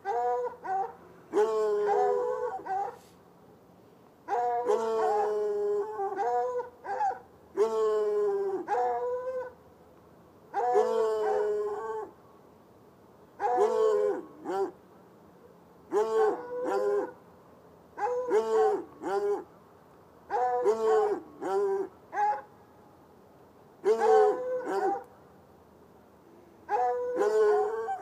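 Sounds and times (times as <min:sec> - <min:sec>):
dogs barking: 0:00.0 - 0:03.0, 0:13.4 - 0:14.7, 0:18.0 - 0:19.4, 0:20.3 - 0:22.5, 0:23.8 - 0:25.1, 0:26.7 - 0:28.0
hounds baying: 0:00.0 - 0:03.0, 0:13.4 - 0:14.8, 0:15.9 - 0:17.2, 0:18.0 - 0:19.5, 0:20.3 - 0:22.5, 0:23.8 - 0:25.1, 0:26.7 - 0:28.0.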